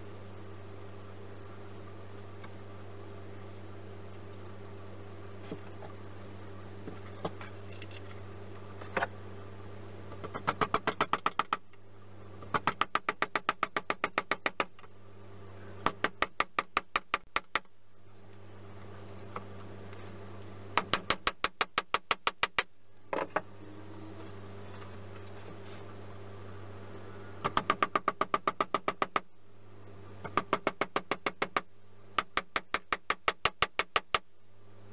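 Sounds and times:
hammer tapping small nails: 30.2 - 34.3.

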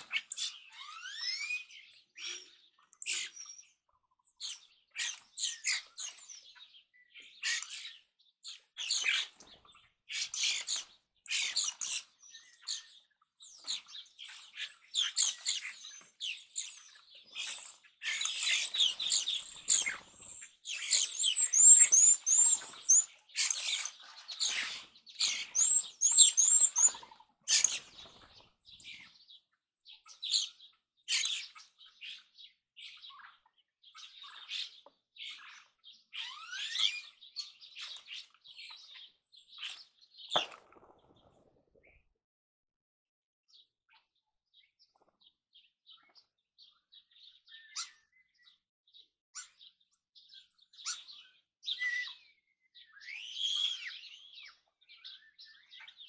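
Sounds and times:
birds chirping and calling: 0.0 - 41.9, 43.5 - 56.0
wings fluttering: 18.3 - 21.2, 40.3 - 41.9.

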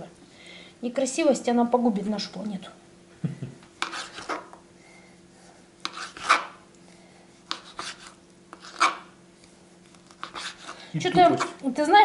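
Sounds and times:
knife slicing tomatoes: 3.8 - 4.6, 5.8 - 6.6, 7.4 - 9.1, 9.9 - 11.6.

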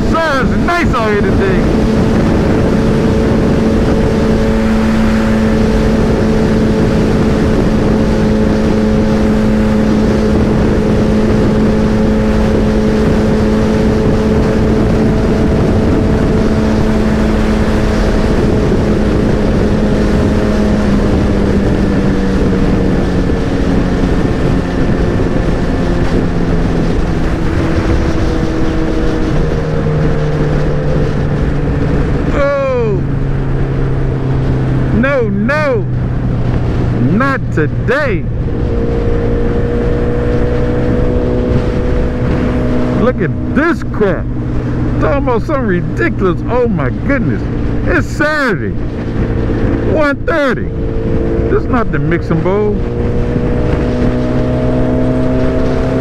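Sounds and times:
motorcycle engine running: 0.0 - 56.0
wind rushing over microphone: 0.0 - 56.0.

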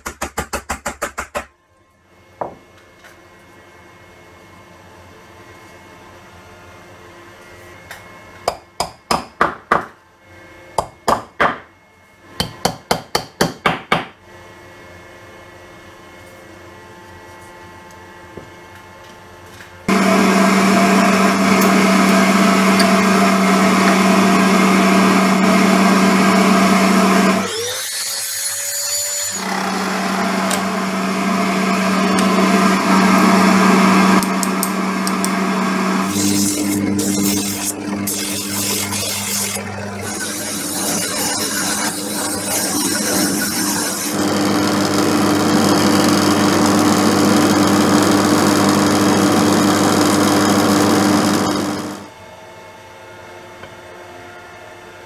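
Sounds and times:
woodworking power tool humming: 19.9 - 52.1.

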